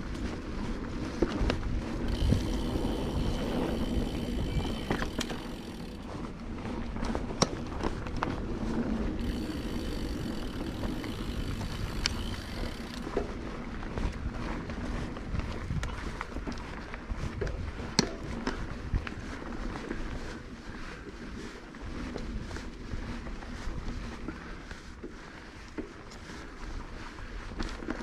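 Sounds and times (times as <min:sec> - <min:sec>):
bike tyres rolling on dirt: 0:00.0 - 0:28.0.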